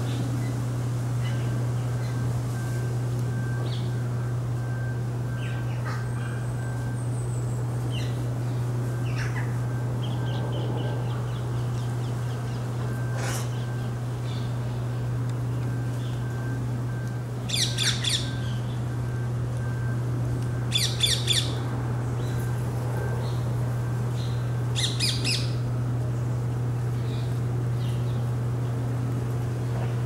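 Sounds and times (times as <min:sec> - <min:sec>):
steady low hum: 0:00.0 - 0:30.0
bird calls and chirps: 0:05.3 - 0:15.0, 0:17.5 - 0:18.9, 0:20.7 - 0:21.6, 0:24.1 - 0:25.6.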